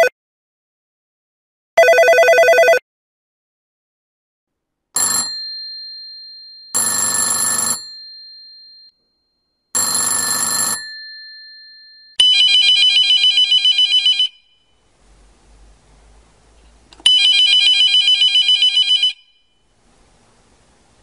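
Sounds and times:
telephone bell ringing: 0:01.8 - 0:02.8, 0:05.0 - 0:14.7, 0:17.0 - 0:19.6
warbling electronic phone ring: 0:01.8 - 0:02.8, 0:05.0 - 0:14.7, 0:17.0 - 0:19.6.

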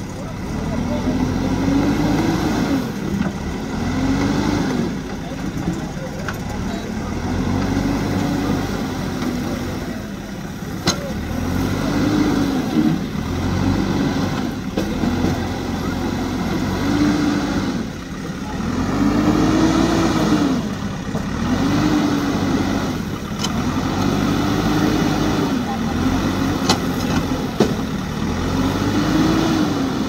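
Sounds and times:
diesel engine revving: 0:00.0 - 0:30.0.

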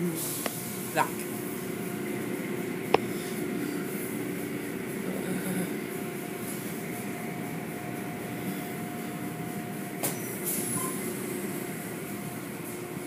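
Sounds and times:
car wash water spray and machinery: 0:00.0 - 0:13.0.

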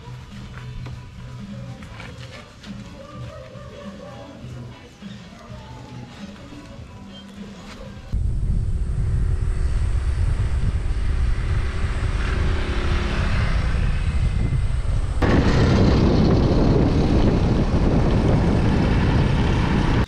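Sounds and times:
wind rumbling on microphone: 0:08.1 - 0:20.0
motor droning: 0:08.2 - 0:20.0.

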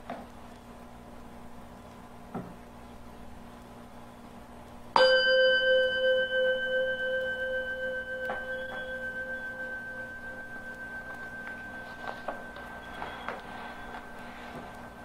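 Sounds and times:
singing bowl ringing: 0:05.0 - 0:15.0.

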